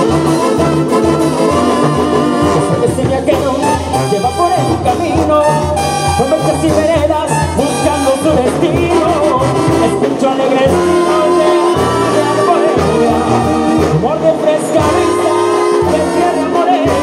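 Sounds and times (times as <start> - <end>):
latin music with pulsing bass: 0.0 - 17.0.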